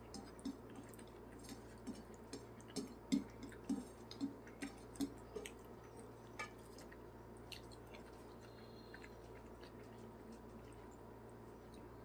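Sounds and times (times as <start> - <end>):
fingers tapping on a plate: 0.0 - 5.6.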